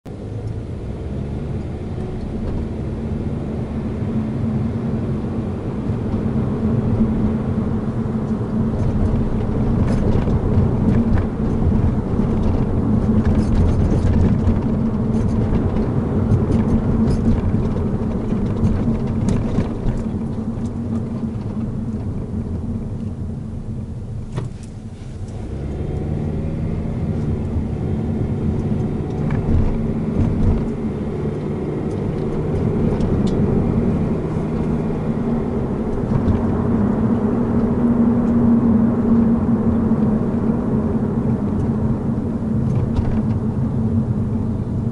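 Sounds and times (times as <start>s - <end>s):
car engine: 0.0s - 44.9s
tyre and road rumble: 0.1s - 44.9s
windshield ticks and squeaks: 8.2s - 22.2s, 27.1s - 38.5s.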